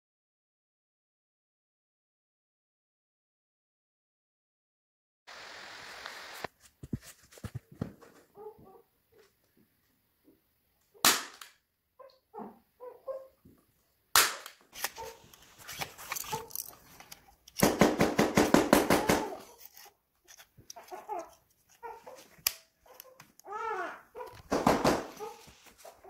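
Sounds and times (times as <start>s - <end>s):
staple gun snaps: 11.0s - 11.6s, 14.2s - 15.0s
tool handling clicks: 14.3s - 17.7s, 19.6s - 23.5s.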